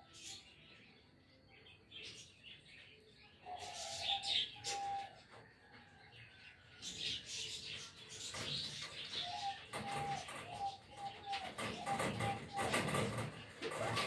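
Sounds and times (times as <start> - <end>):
pigeon squab peeping: 8.3 - 14.0.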